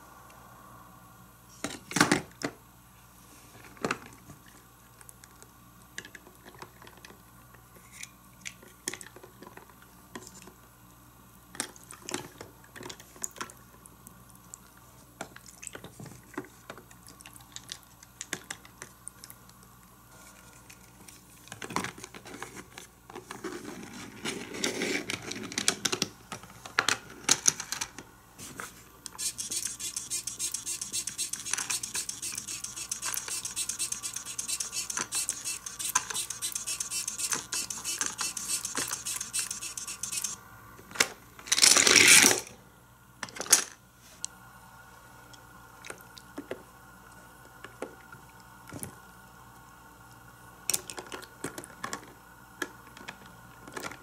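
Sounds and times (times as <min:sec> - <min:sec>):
toy car clicking on plastic: 0:29.1 - 0:40.4.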